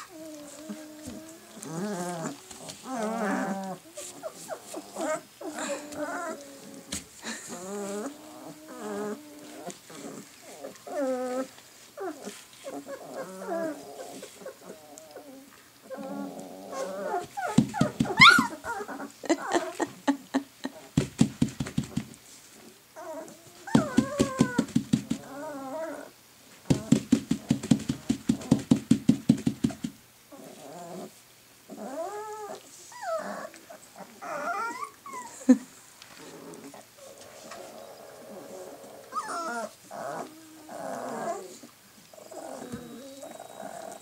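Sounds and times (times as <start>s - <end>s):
puppies growling: 0.0s - 19.9s, 20.7s - 28.7s, 29.4s - 44.0s
puppies whining: 0.0s - 19.9s, 23.0s - 26.1s, 31.7s - 35.6s, 36.6s - 44.0s.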